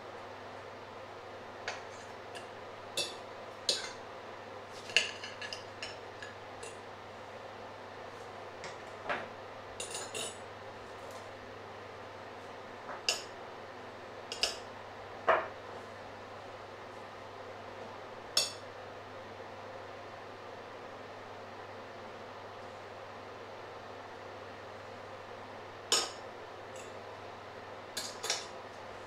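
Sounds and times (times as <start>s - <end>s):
cutlery clinking on plates: 1.7s - 4.0s, 4.8s - 6.8s, 9.8s - 10.4s.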